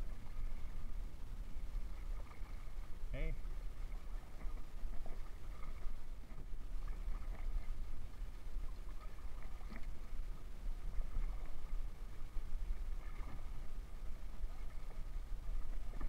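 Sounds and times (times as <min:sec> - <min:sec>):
constant low rumble: 0:00.0 - 0:16.0
paddle splashing in water: 0:01.7 - 0:16.0.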